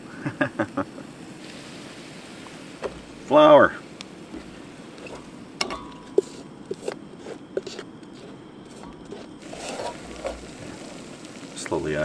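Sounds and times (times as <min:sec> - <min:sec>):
wooden spatula scraping metal pot: 0:04.3 - 0:11.1.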